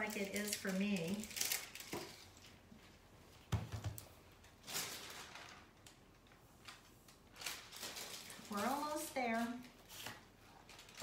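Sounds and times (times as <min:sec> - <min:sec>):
paper rustling: 0:04.4 - 0:11.0.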